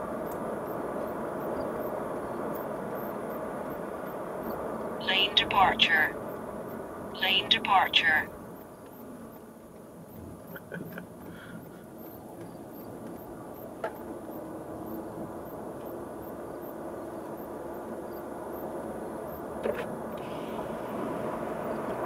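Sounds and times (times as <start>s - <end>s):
low steady hum: 5.0s - 8.6s.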